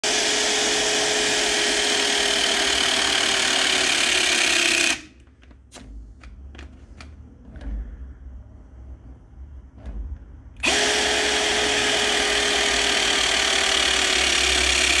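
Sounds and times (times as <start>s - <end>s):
hydraulic crimper motor whirring: 0.0s - 5.9s, 10.6s - 15.0s.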